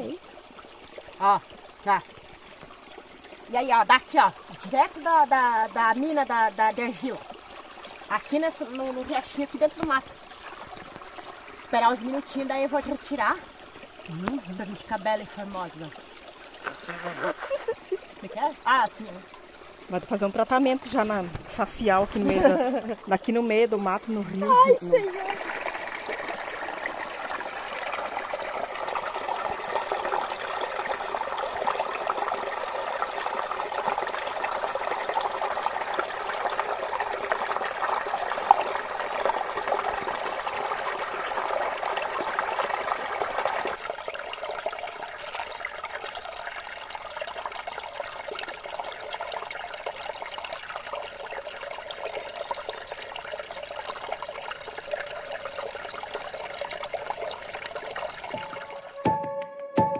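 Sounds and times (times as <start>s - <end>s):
stream trickling over rocks: 0.0s - 59.9s.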